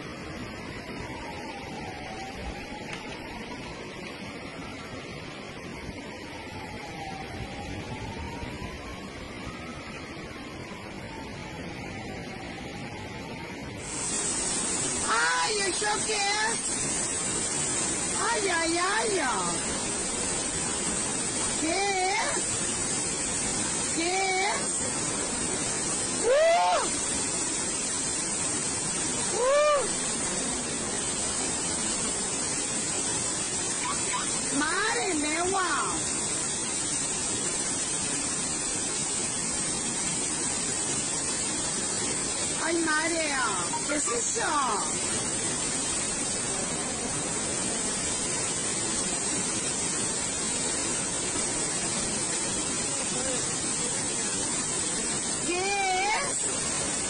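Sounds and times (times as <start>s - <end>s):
river roaring: 0.1s - 57.0s
person exclaiming: 26.2s - 26.9s, 29.3s - 30.0s.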